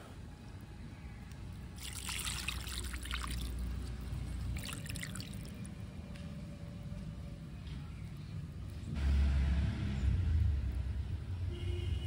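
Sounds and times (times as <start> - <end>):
water trickling into pot: 1.8 - 5.7.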